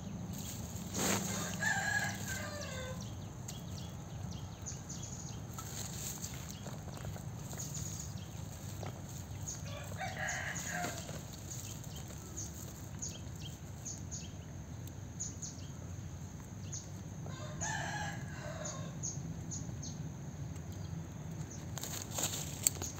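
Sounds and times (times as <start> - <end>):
rooster crowing: 1.0 - 3.2, 9.5 - 11.2, 17.2 - 19.1.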